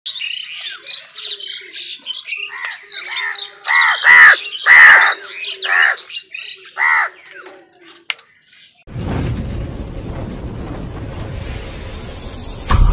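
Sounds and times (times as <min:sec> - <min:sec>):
crows squeaky calls: 0:02.4 - 0:07.4
crows cawing harshly: 0:02.5 - 0:06.1, 0:06.7 - 0:07.3.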